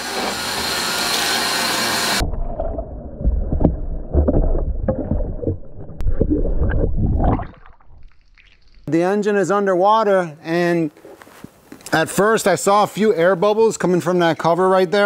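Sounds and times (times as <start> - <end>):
underwater gurgling and bubbling: 2.2 - 8.9
low underwater thuds and knocks: 2.3 - 8.2.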